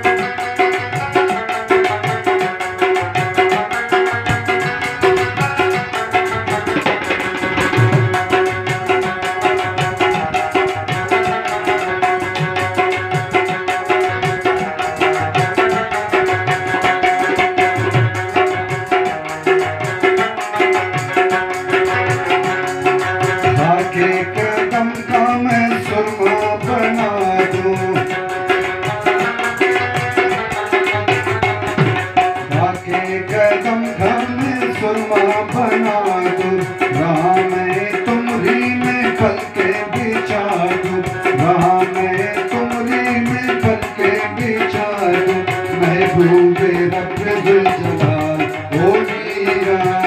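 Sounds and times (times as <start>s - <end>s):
hand drum rhythm: 0.0s - 50.0s
harmonium holding notes: 0.0s - 50.0s
string instrument melody: 0.0s - 50.0s.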